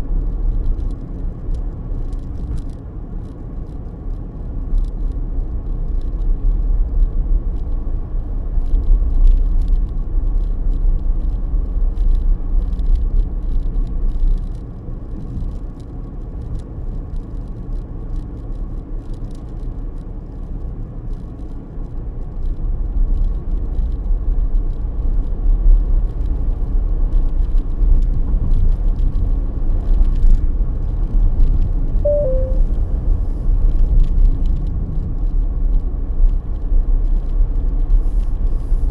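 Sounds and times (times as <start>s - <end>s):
car engine and tyre noise: 0.0s - 38.9s
two-note tone: 32.1s - 32.8s.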